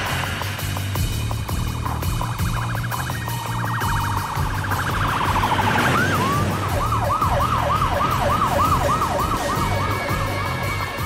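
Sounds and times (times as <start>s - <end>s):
emergency siren wailing: 2.5s - 11.0s.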